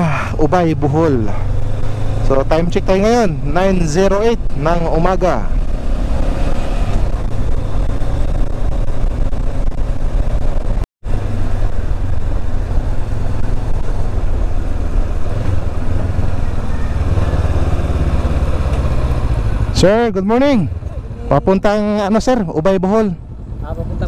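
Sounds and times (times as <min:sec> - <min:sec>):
motorcycle engine running: 0:00.0 - 0:24.0
wind rush on microphone: 0:05.2 - 0:19.7.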